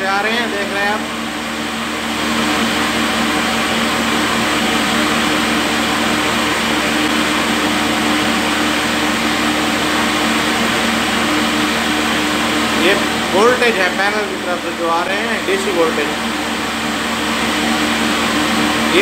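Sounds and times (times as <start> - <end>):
flour mill motor whirring: 0.0 - 19.0.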